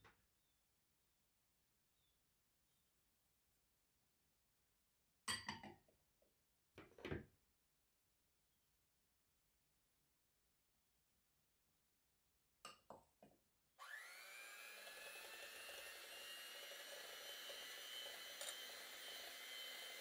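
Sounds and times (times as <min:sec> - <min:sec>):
electric hand mixer whirring: 0:13.8 - 0:20.0.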